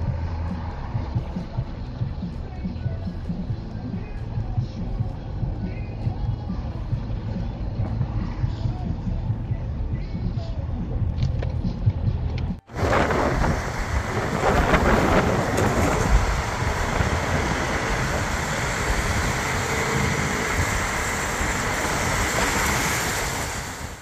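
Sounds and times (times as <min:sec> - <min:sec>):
wind buffeting microphone: 0:12.7 - 0:24.0.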